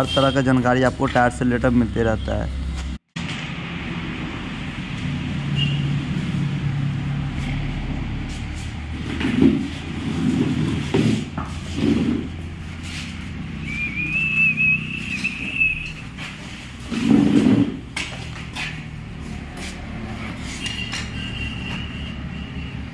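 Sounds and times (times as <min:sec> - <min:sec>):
wheel and tools clattering on tile: 0:09.0 - 0:12.5, 0:16.1 - 0:19.0
high wavering whistle-like tone: 0:13.6 - 0:16.0.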